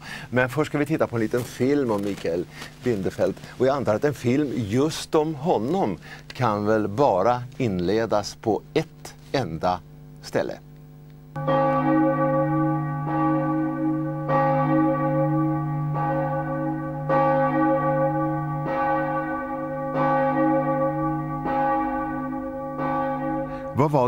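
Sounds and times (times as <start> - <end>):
church bell tolling: 11.4 - 24.0.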